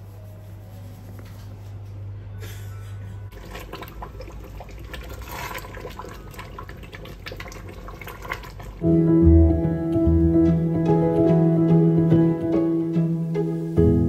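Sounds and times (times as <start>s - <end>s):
music: 0.0s - 4.0s, 8.8s - 14.0s
water running: 3.3s - 8.9s.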